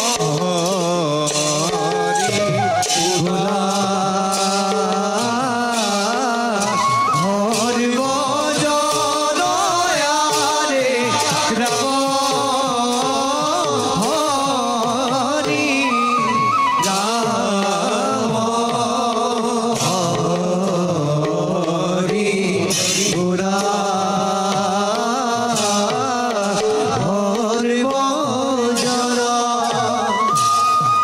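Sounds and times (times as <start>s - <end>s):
cymbals clashing: 0.0s - 18.8s
barrel drum beats: 0.0s - 31.0s.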